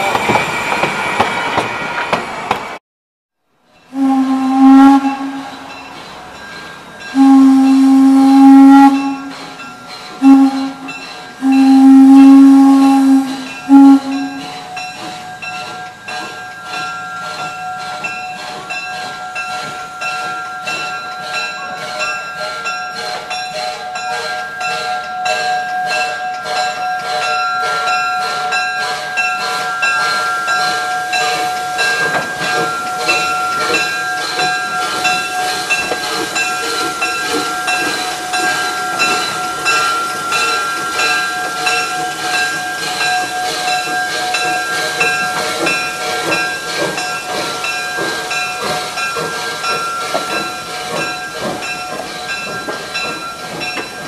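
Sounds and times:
crossing warning bell ringing: 3.7 - 54.0
steam whistle blasts: 3.9 - 5.9, 7.1 - 14.6.

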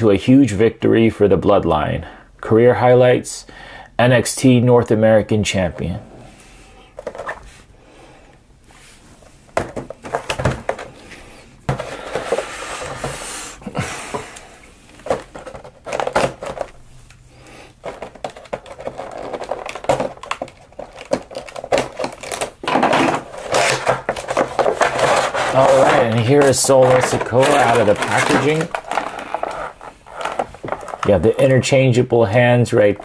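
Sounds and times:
packaging crinkling and rustling: 15.0 - 17.2, 17.8 - 31.7.

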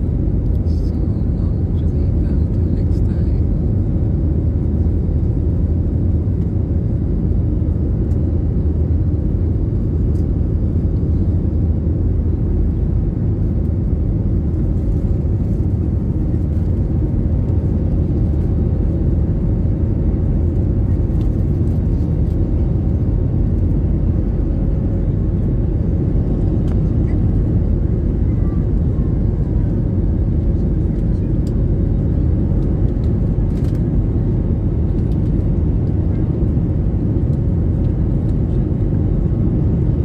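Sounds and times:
jet airliner cabin rumble: 0.0 - 40.0.

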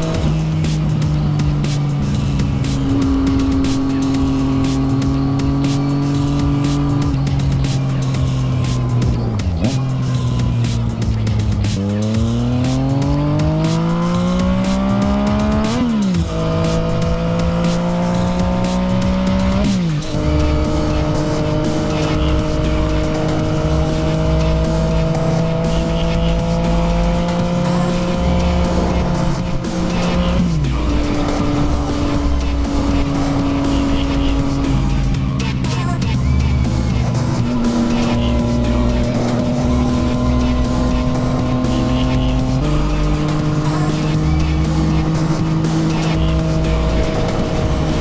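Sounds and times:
motorcycle engine accelerating: 0.0 - 48.0.

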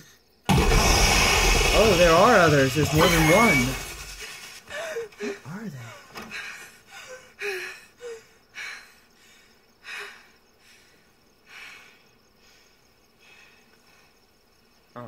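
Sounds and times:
girl breathing heavily and gasping: 4.6 - 14.2.

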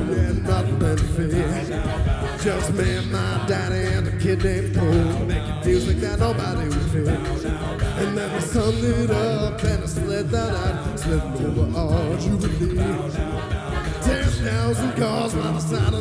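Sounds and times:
beatboxing: 0.0 - 16.0
layered backing vocals: 0.0 - 16.0
lead singing voice: 0.0 - 16.0.

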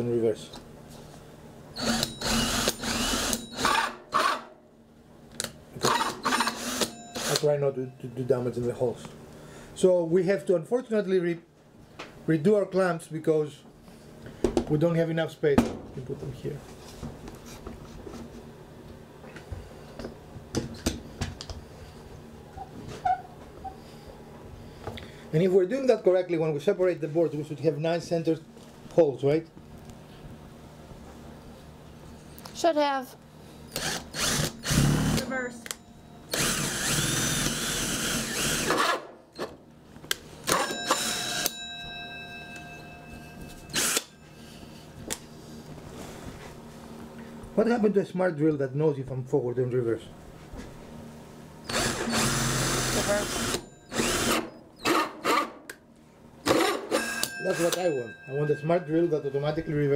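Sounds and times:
power drill stopping: 1.8 - 4.4, 5.8 - 7.5, 33.7 - 35.3, 36.3 - 38.9, 43.7 - 44.1, 51.7 - 55.0
metallic ringing tone: 6.9 - 8.3, 40.6 - 44.9, 56.9 - 59.9.

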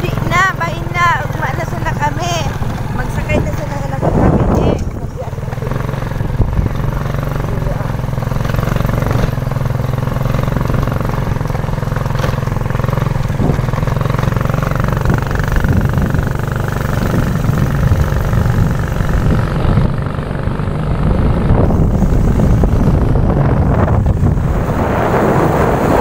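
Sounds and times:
motorcycle engine running: 0.0 - 26.0
road noise: 0.0 - 26.0
wind: 0.0 - 26.0.

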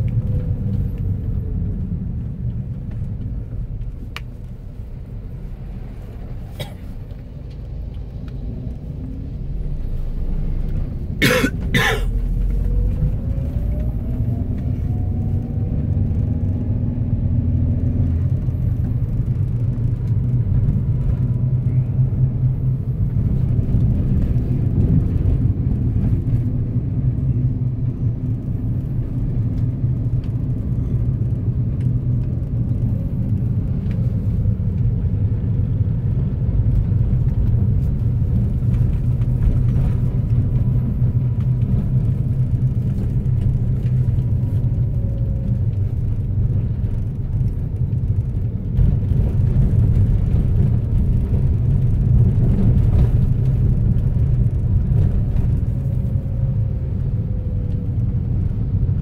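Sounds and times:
car driving rumble: 0.0 - 59.0.

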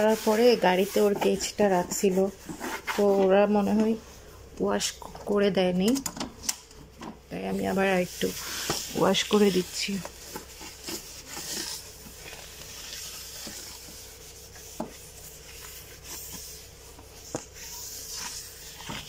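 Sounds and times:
tissue rubbing on cage: 7.7 - 19.0.

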